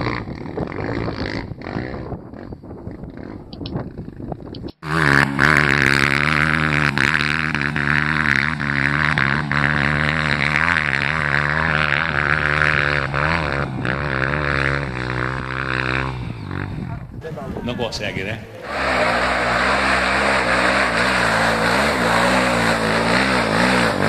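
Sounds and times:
dirt bike engine at high revs: 0:00.0 - 0:17.2, 0:18.5 - 0:24.0.

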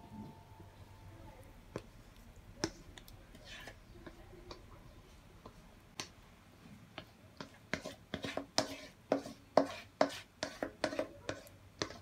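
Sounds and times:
spatula scraping metal pot: 0:02.6 - 0:04.6, 0:07.4 - 0:12.0.

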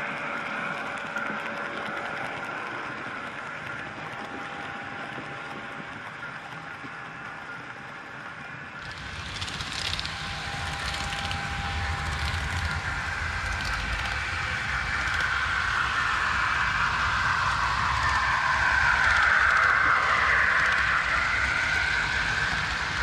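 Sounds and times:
model train wheels rumbling: 0:08.8 - 0:23.0.

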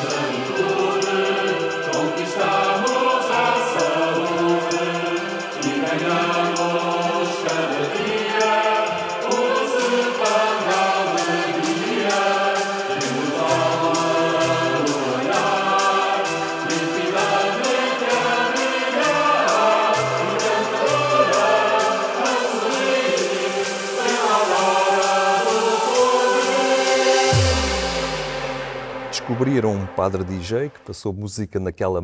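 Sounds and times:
choir singing: 0:00.0 - 0:30.8
steady beat: 0:09.8 - 0:30.9.

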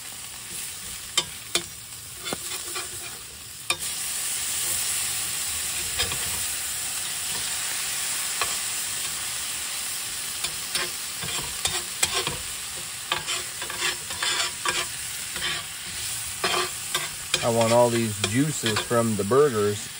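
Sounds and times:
food sizzling on a griddle: 0:00.0 - 0:19.9
metal spatula scraping griddle: 0:00.5 - 0:03.9, 0:05.7 - 0:06.5, 0:10.4 - 0:19.3.

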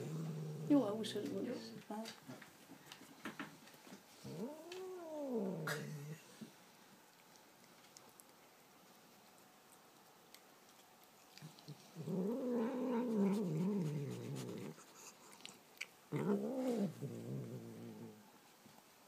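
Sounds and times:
cat growling while eating: 0:00.0 - 0:01.9, 0:04.2 - 0:06.4, 0:11.2 - 0:18.3.

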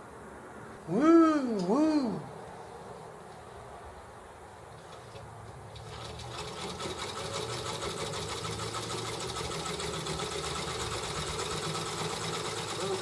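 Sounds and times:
electric sewing machine running: 0:05.8 - 0:13.0.

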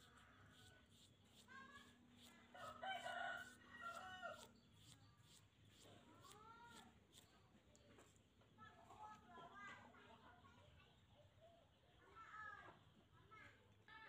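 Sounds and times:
nail file scraping: 0:00.0 - 0:07.4
rooster crowing: 0:02.5 - 0:04.5.

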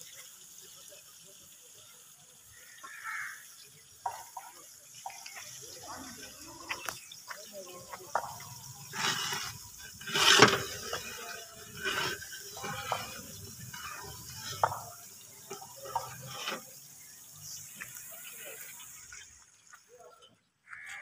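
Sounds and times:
onions sizzling in oil: 0:00.0 - 0:19.4.

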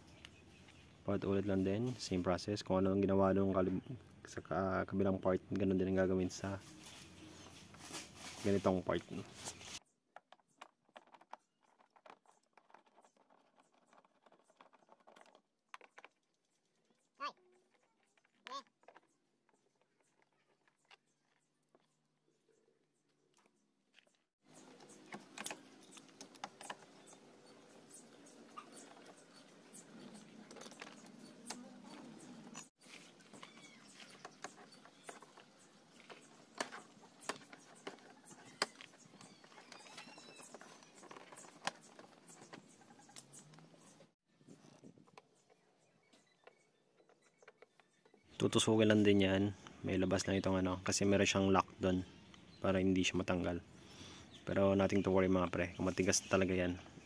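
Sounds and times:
hand tools clicking and tapping: 0:24.5 - 0:44.1.

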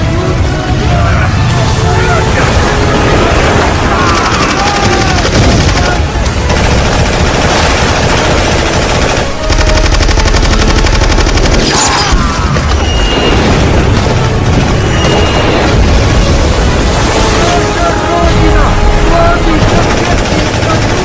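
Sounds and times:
automatic gunfire: 0:03.8 - 0:11.9.

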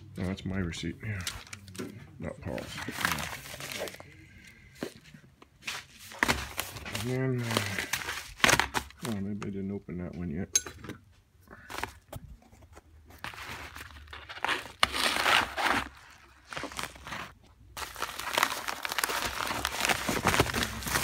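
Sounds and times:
padded envelope crinkling and tearing: 0:02.5 - 0:04.7, 0:05.6 - 0:09.2, 0:13.2 - 0:21.0.

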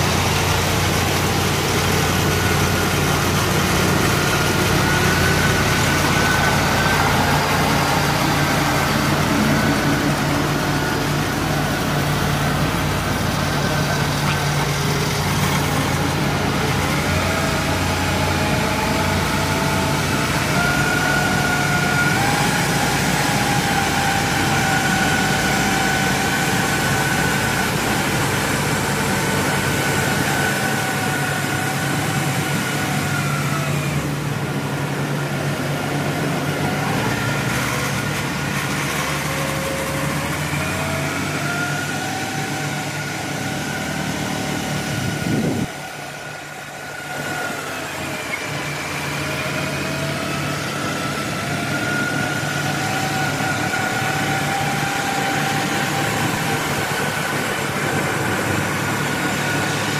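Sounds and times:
high wavering whine: 0:00.0 - 0:37.1
tracked carrier engine running: 0:00.0 - 0:59.9.

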